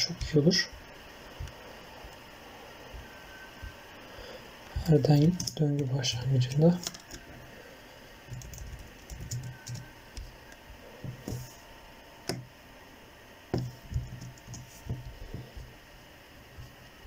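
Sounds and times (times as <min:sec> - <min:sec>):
keyboard keys clicking: 0:06.8 - 0:07.2, 0:08.3 - 0:09.8.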